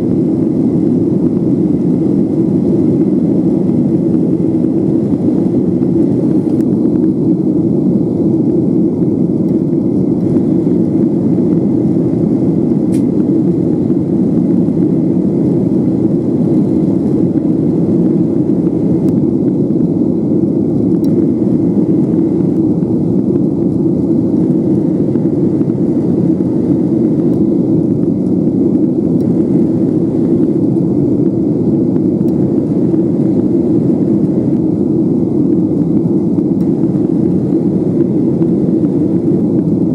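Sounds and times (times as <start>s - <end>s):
jet engine drone: 0.0s - 39.9s
rushing airflow: 0.0s - 39.9s.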